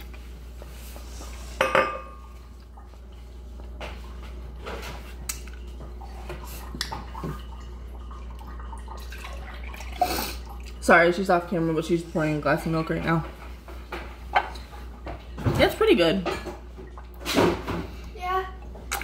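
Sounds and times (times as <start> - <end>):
dishware clinking: 1.6 - 2.3.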